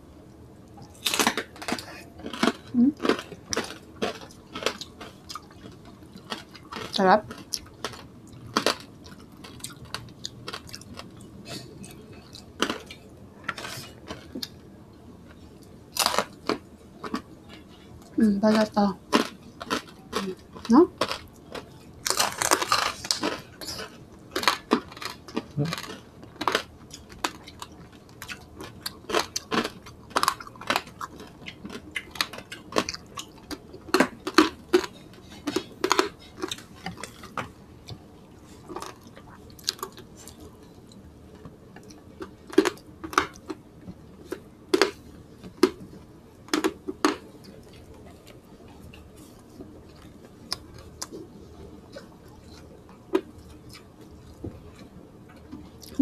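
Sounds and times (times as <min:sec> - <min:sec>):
crunching crispy pork skin: 0:00.9 - 0:11.7, 0:15.9 - 0:17.2, 0:19.1 - 0:37.4.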